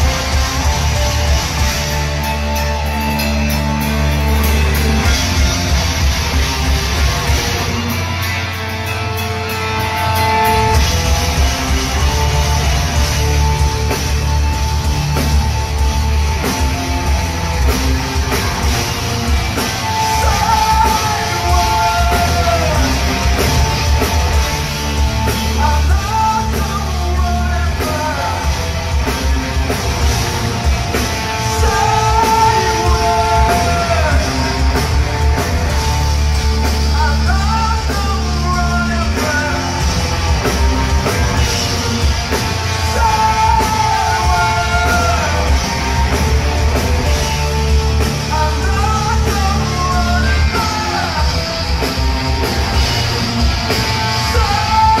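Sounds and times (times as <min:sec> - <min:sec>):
heavy metal band playing live: 0:00.0 - 0:55.0
person singing: 0:19.9 - 0:23.6, 0:31.3 - 0:35.1, 0:42.8 - 0:46.1, 0:53.9 - 0:55.0.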